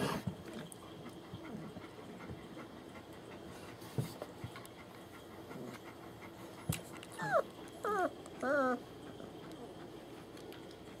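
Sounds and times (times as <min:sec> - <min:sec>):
dog whimpering: 0:07.0 - 0:09.8.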